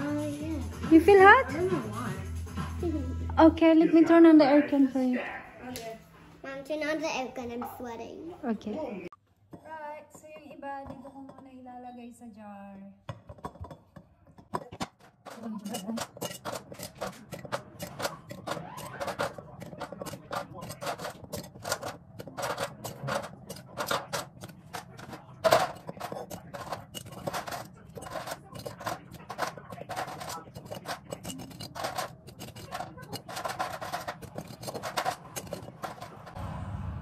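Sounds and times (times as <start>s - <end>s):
toasted bread clattering into glass jar: 15.3s - 36.4s.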